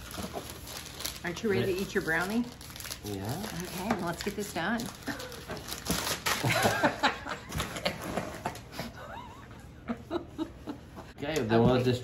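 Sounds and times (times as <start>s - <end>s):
man and woman laughing: 6.3s - 11.2s.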